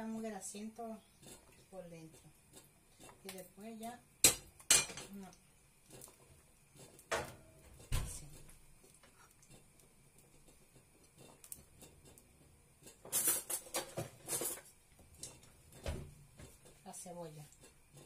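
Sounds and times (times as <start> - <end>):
rustling and scraping: 5.9 - 18.0.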